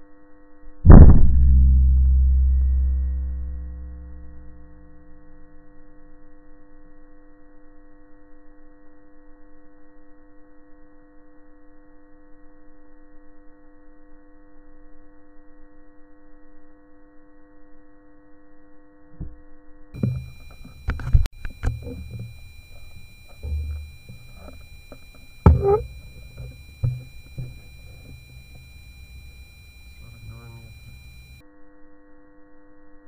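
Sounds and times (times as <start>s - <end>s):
low steady hum: 0.2s - 10.3s, 18.8s - 31.4s
low thumps: 0.9s - 5.1s, 20.0s - 31.4s
sharp knocks: 20.0s - 28.8s.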